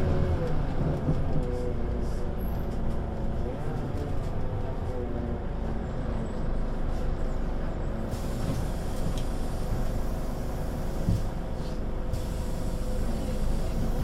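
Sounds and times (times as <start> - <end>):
bus engine humming: 0.0 - 14.0
air hiss: 8.1 - 14.0.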